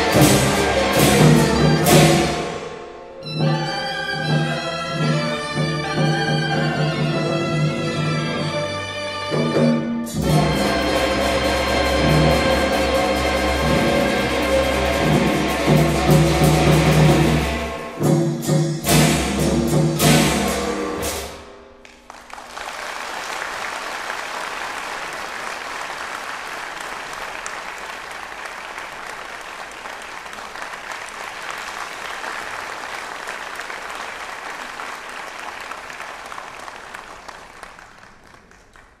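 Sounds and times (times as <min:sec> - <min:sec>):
orchestra chord with drums: 0:00.0 - 0:08.6, 0:09.3 - 0:21.7
audience applauding: 0:21.8 - 0:39.0.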